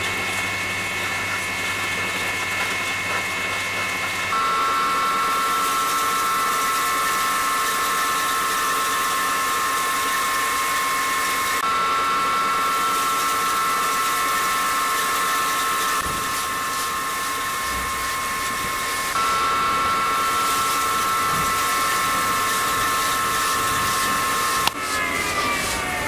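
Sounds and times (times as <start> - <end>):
electric motor whine with grinding: 0.0 - 26.0.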